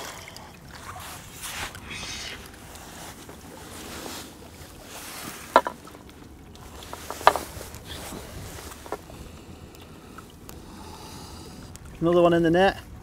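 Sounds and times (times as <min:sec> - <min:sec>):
small waves lapping: 0:00.0 - 0:13.0
wind: 0:00.0 - 0:13.0.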